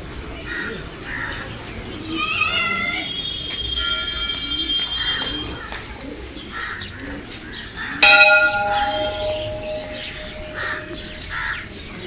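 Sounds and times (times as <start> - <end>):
temple bell ringing: 3.8 - 4.6, 8.0 - 11.9.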